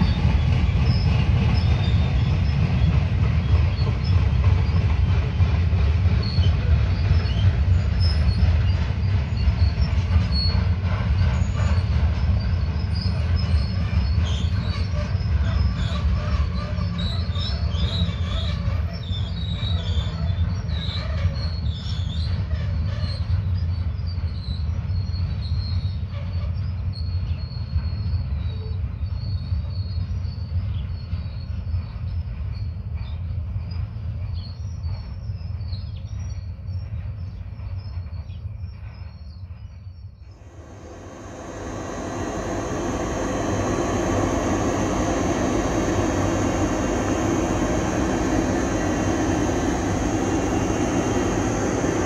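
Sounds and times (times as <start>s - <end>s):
wheel squeal: 0.0s - 4.8s, 6.2s - 31.6s
train wheels rumbling on rail: 0.0s - 52.0s.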